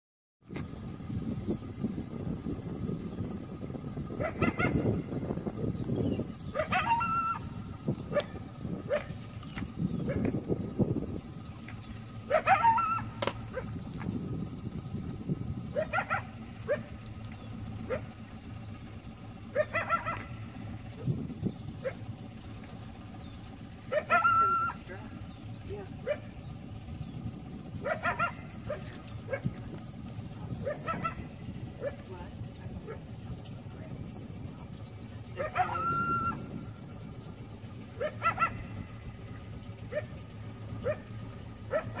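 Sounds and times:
steady low hum: 0:00.5 - 0:42.0
coyote yipping barks: 0:04.2 - 0:05.0, 0:06.4 - 0:07.5, 0:08.1 - 0:09.2, 0:10.0 - 0:10.4, 0:12.3 - 0:13.8, 0:15.7 - 0:17.0, 0:17.8 - 0:18.2, 0:19.5 - 0:21.1, 0:21.8 - 0:22.1, 0:23.8 - 0:24.9, 0:26.0 - 0:26.4, 0:27.8 - 0:29.6, 0:30.6 - 0:32.1, 0:35.3 - 0:36.6, 0:37.9 - 0:38.8, 0:39.8 - 0:40.2, 0:40.8 - 0:42.0
coyote howl: 0:06.5 - 0:08.2, 0:12.3 - 0:13.7, 0:23.9 - 0:24.8, 0:35.4 - 0:36.5.

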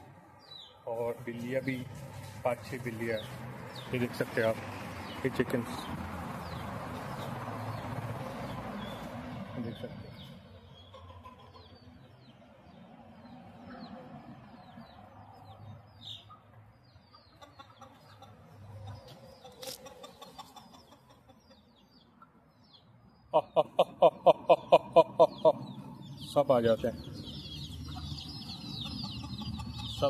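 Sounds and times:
chickens clucking: 0:00.0 - 0:12.2, 0:13.5 - 0:22.6, 0:23.3 - 0:30.0
rapid evenly spaced calls: 0:17.1 - 0:22.2, 0:23.4 - 0:30.0
high peeps and chirps: 0:25.2 - 0:30.0.

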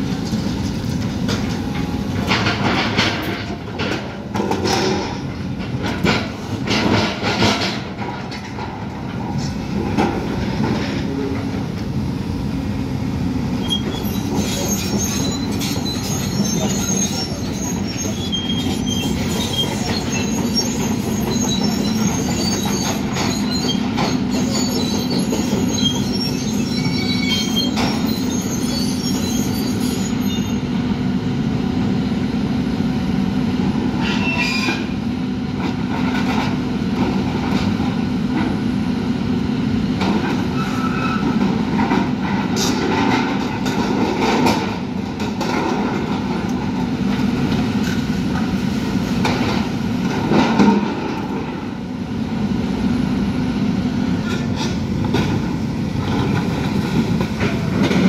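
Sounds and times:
diesel excavator engines running: 0:00.0 - 0:58.0
metal squeals and knocks: 0:13.6 - 0:30.7, 0:34.0 - 0:34.9, 0:40.5 - 0:41.5.

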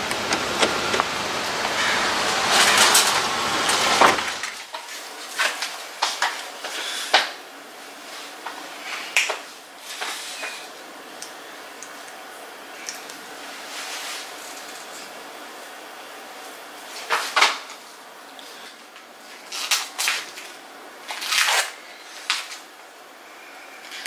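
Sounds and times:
paper grocery bags rustling: 0:18.4 - 0:22.7.

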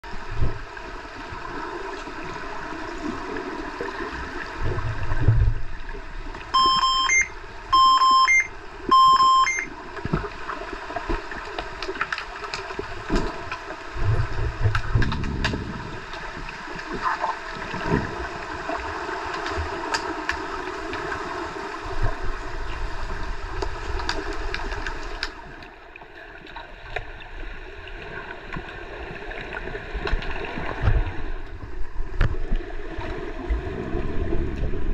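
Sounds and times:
underwater rushing and bubbling: 0:00.0 - 0:34.9
loud electronic beeps: 0:06.6 - 0:09.7.

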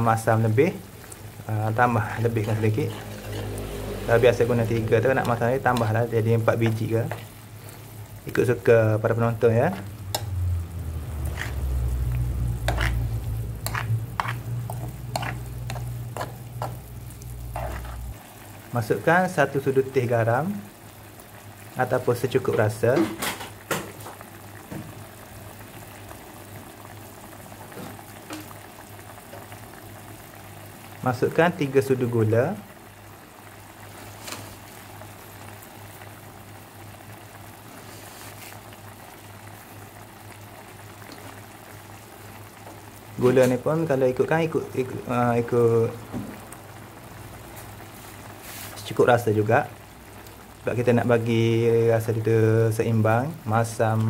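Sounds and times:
sauce bubbling in a pan: 0:00.0 - 0:54.0
spatula scraping a pan: 0:02.2 - 0:04.1, 0:11.2 - 0:11.7, 0:12.6 - 0:18.2.

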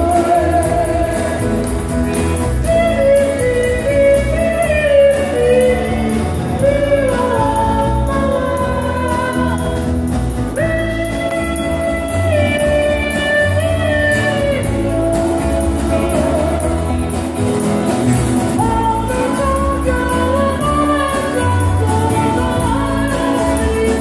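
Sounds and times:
country band playing: 0:00.0 - 0:24.0
strummed acoustic guitars: 0:00.0 - 0:24.0.

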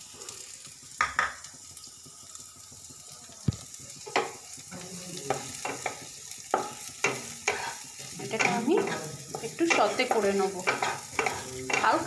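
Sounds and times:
onions sizzling in a pan: 0:00.0 - 0:12.0
spatula scraping a pan: 0:03.9 - 0:12.0.

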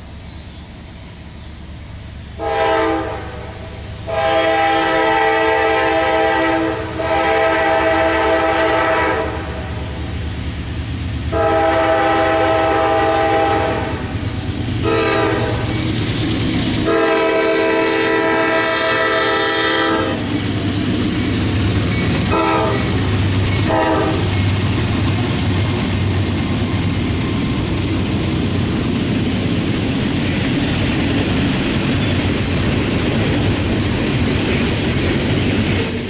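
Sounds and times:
freight train rumbling on rails: 0:00.0 - 0:36.0
locomotive air horn blasts: 0:02.4 - 0:09.8, 0:11.3 - 0:14.1, 0:14.8 - 0:15.7, 0:16.8 - 0:20.3, 0:22.3 - 0:24.3.

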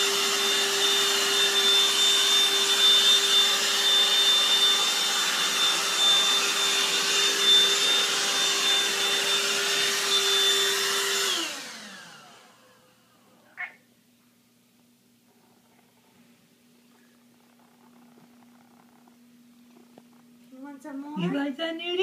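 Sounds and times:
handheld vacuum whining: 0:00.0 - 0:13.2
vacuum winding down: 0:00.0 - 0:13.2.

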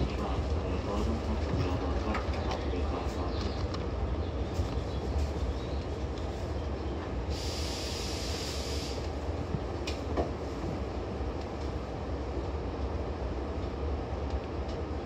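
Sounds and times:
electric train rumbling: 0:00.0 - 0:15.0
hiss: 0:07.3 - 0:09.1.

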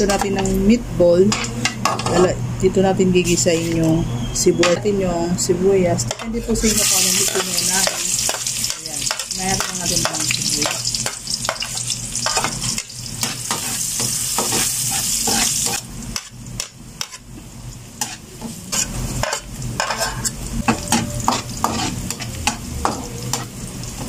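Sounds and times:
onion sizzling in hot oil: 0:06.6 - 0:24.0
metal spatula scraping wok: 0:12.2 - 0:15.9, 0:18.0 - 0:23.6.

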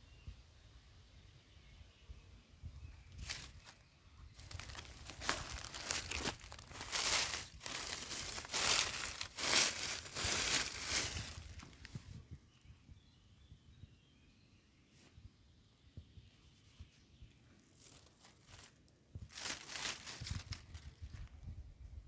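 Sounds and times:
dry leaves crackling: 0:03.1 - 0:03.8, 0:04.4 - 0:11.9, 0:17.7 - 0:21.3.

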